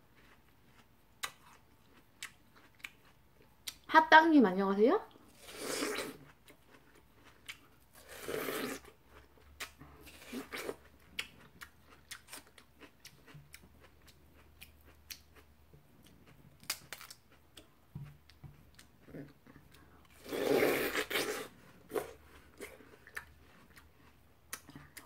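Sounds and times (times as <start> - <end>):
biting and chewing watermelon: 5.3 - 25.0.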